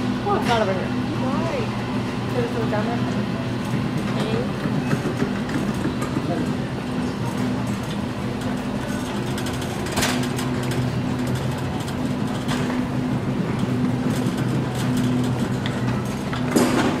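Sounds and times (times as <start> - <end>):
shopping cart rattling rolling: 2.4 - 17.0.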